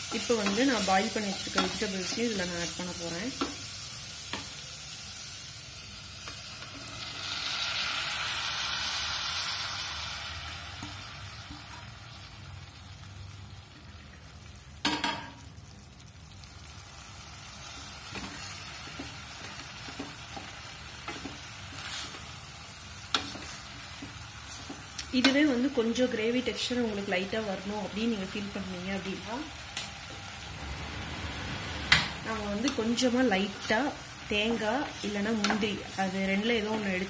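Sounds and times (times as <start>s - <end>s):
vegetables sizzling in a pot: 0.0s - 37.0s.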